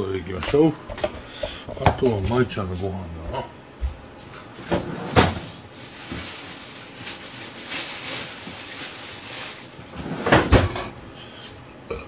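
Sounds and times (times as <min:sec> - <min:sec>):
food containers clattering: 0:00.4 - 0:02.5.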